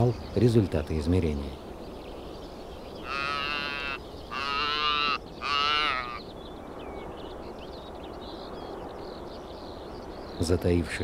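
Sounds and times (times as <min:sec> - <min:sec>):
antelope calf bleating: 0:03.0 - 0:06.2.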